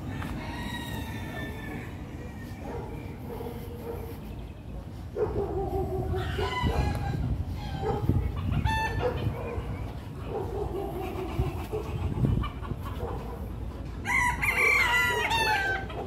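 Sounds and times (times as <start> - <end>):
rooster crowing: 0.0 - 2.8, 6.2 - 9.1, 14.0 - 16.0
chicken calls: 5.5 - 13.4, 14.1 - 16.0.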